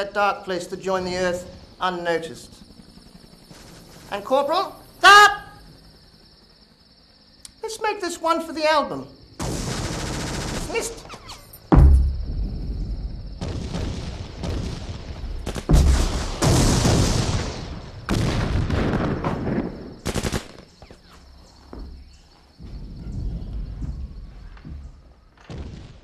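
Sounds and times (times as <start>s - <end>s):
rapid gunfire bursts: 9.4s - 11.0s, 13.4s - 17.6s, 18.9s - 20.8s
heavy explosion blast: 11.7s - 20.0s.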